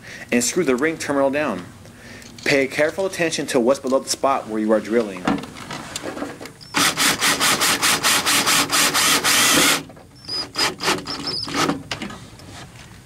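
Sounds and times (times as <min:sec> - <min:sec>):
power drill driving screw into metal: 0:06.6 - 0:11.8.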